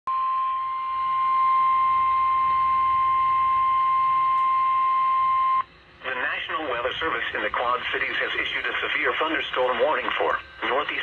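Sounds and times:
high-pitched alarm tone: 0.1 - 5.7.

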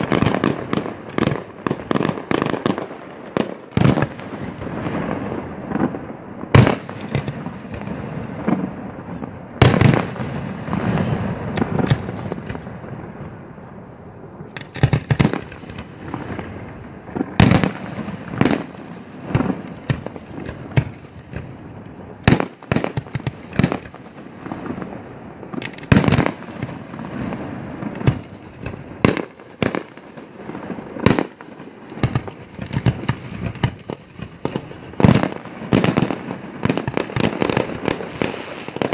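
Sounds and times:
firework shells bursting: 14.5 - 38.9.

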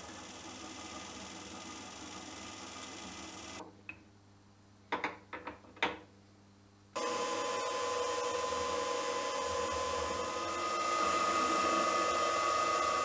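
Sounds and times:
end mill cutting metal: 0.0 - 3.6, 7.0 - 13.0
milling machine spindle whine: 0.0 - 3.6, 7.0 - 13.0.

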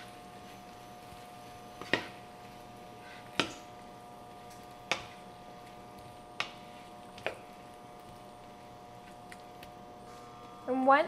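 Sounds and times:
faint steady hum: 0.0 - 11.0
wooden spoon knocking on skillet: 1.7 - 2.3, 3.0 - 9.8.

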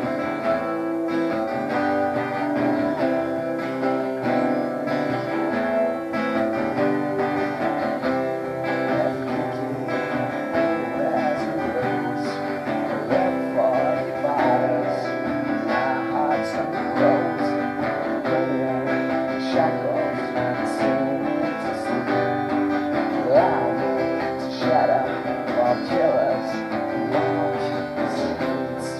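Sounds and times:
two acoustic guitars playing: 0.0 - 28.9.

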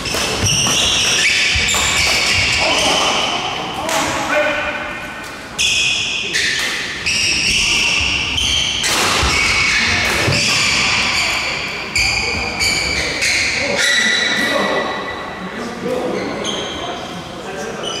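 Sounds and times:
shoes squeaking on wooden floor: 0.0 - 3.3
footfalls and racket hits: 8.8 - 10.9.

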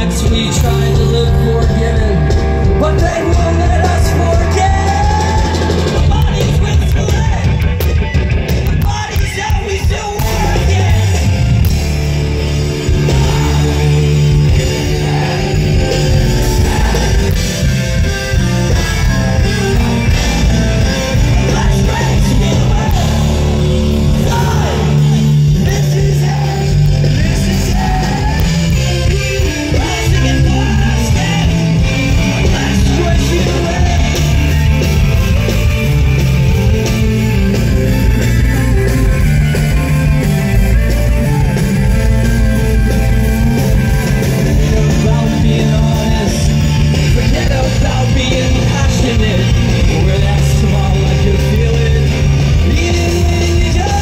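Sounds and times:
person singing: 0.0 - 7.6, 12.8 - 34.8, 44.4 - 54.0
live rock band playing: 0.0 - 54.0.

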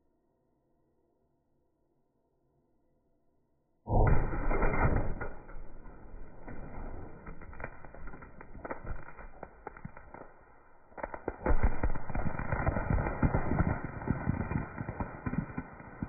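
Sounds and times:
firework crackling and popping: 3.9 - 16.0
firework loud burst: 3.9 - 16.0.

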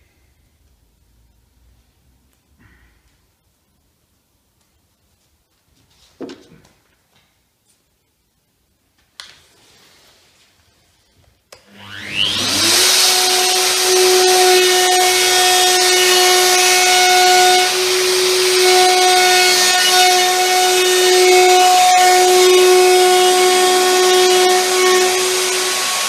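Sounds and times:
router motor whining: 11.6 - 26.0.

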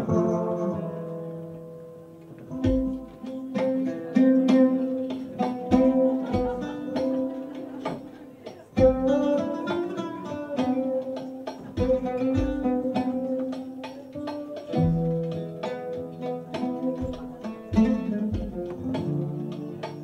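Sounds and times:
oud: 0.0 - 20.0
resonator guitar: 0.0 - 20.0
hand drum strikes: 2.2 - 20.0
deep drum thumps: 2.6 - 3.2, 17.0 - 19.2.

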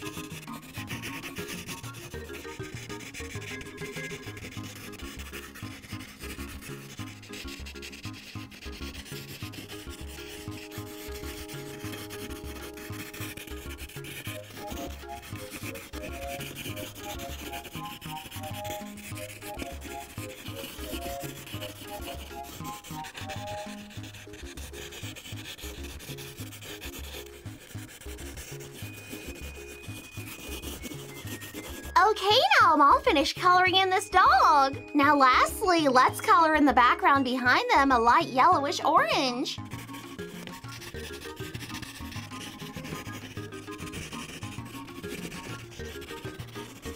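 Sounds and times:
pencil scratching on paper: 0.0 - 46.9
soft background music with beat: 0.0 - 46.9.

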